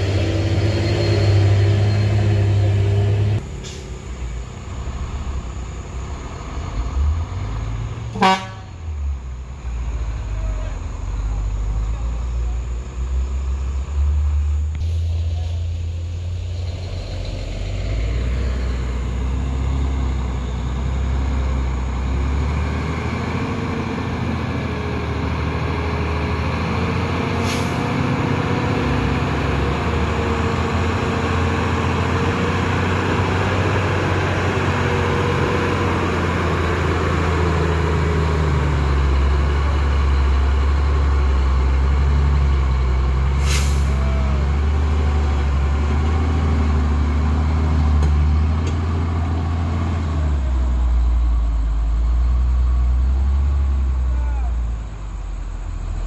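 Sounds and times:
diesel truck engine labouring: 0.0s - 56.0s
air brake hisses: 3.5s - 4.1s, 27.4s - 27.9s, 43.4s - 44.0s.

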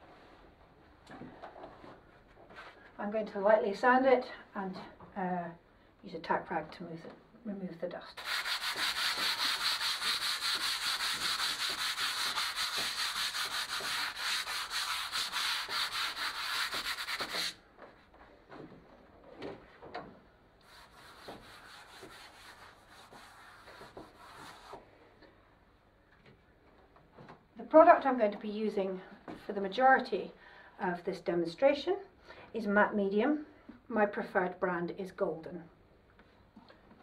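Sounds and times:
hand sanding scratchy strokes: 8.2s - 17.6s, 20.6s - 24.8s
soft rubbing with rag: 8.2s - 18.6s, 20.6s - 24.8s.

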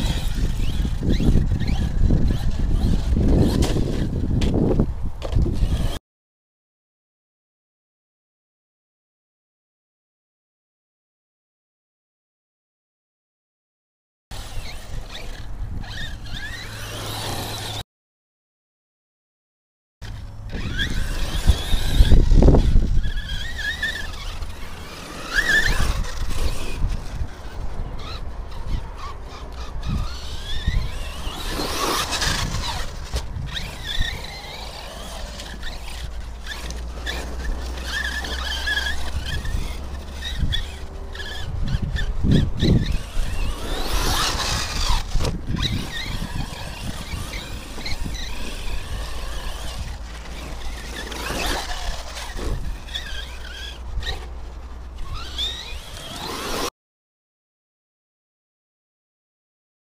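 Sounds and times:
high whine of electric motors: 0.0s - 6.0s, 14.4s - 17.8s, 20.0s - 56.7s
wind buffeting microphone: 0.0s - 6.0s, 20.0s - 56.3s.

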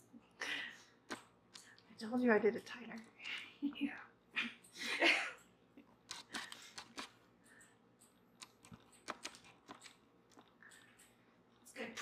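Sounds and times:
knitting hook clicks and scratches: 6.0s - 11.7s.

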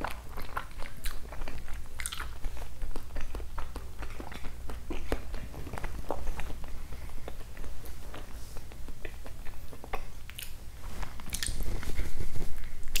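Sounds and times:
chewing mouth sounds: 0.0s - 10.6s, 11.2s - 12.0s
rustles: 10.8s - 13.0s.

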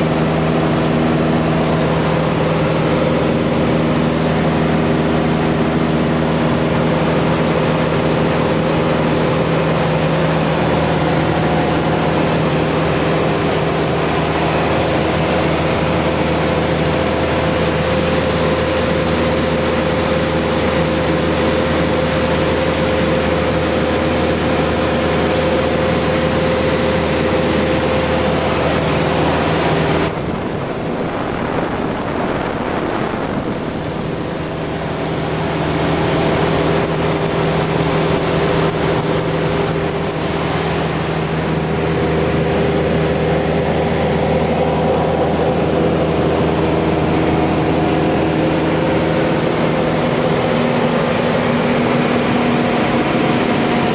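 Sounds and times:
propeller plane engine droning: 0.0s - 53.9s
wind rushing: 29.6s - 35.8s.

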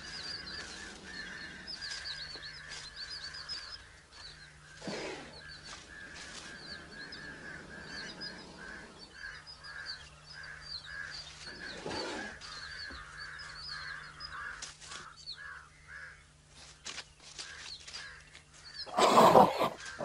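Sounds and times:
high chirping calls: 0.0s - 14.4s
quick twittering calls: 0.0s - 20.0s.

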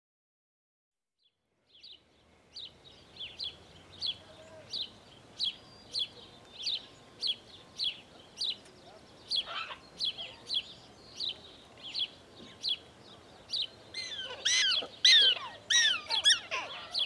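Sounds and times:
prairie dog chirping: 13.9s - 17.0s.

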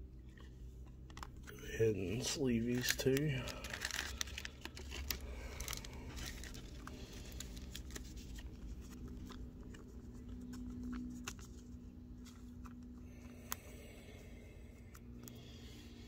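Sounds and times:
card and plastic sleeve rustling: 0.0s - 16.0s
faint low hum: 0.0s - 16.0s.

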